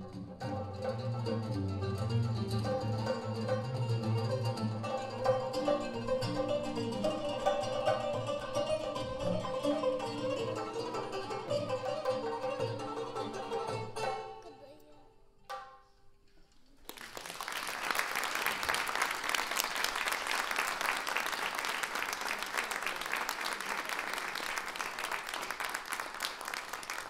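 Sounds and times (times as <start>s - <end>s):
plucked string and drum ensemble: 0.0s - 16.0s
audience applause: 16.7s - 27.0s.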